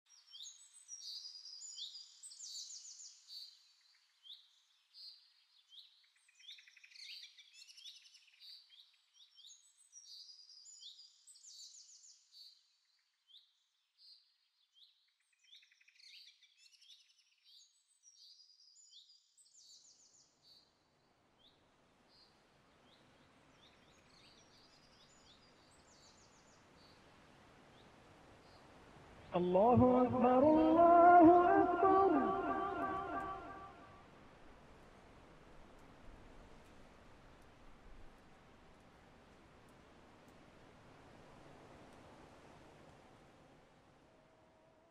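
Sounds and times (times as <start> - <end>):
low background hiss: 0.1 - 44.9
birds chirping: 29.4 - 33.9.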